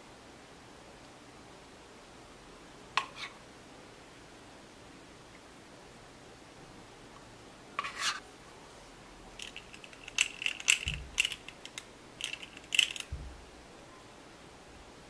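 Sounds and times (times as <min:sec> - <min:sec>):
metal scrape: 0:07.8 - 0:08.2
dull thump: 0:13.1 - 0:13.5.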